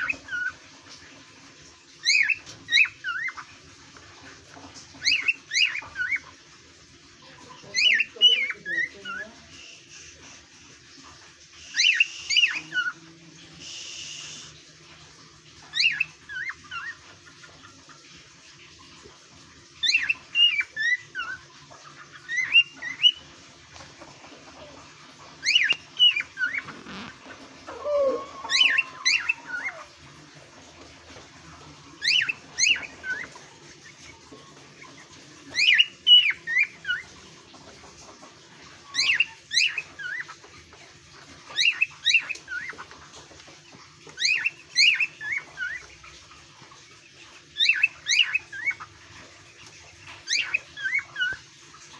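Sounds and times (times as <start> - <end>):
faint sliding bird call: 25.4 - 30.0
cockatiel whistling: 27.7 - 29.8.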